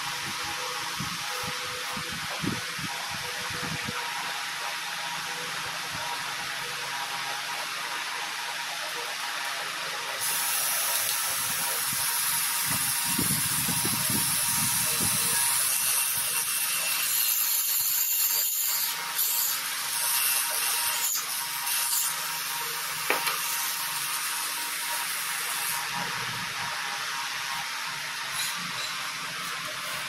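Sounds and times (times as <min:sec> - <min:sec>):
small motor whirring: 0:10.2 - 0:30.0.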